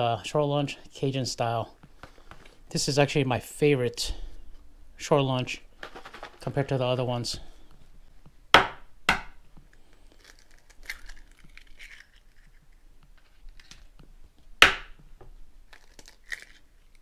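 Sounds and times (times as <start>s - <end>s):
eggshell crackling: 9.6s - 14.0s, 15.6s - 17.0s.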